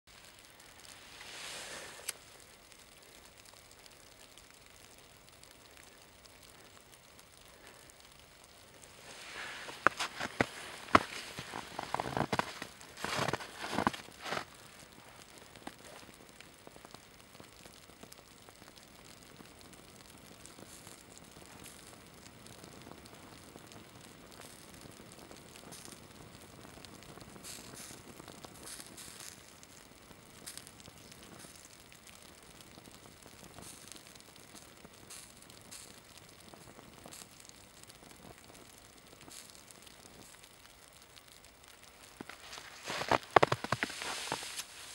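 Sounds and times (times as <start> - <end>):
fabric burning and sizzling: 0.1 - 44.9
steady outdoor hiss: 0.1 - 44.9
fabric rustling: 42.4 - 44.9.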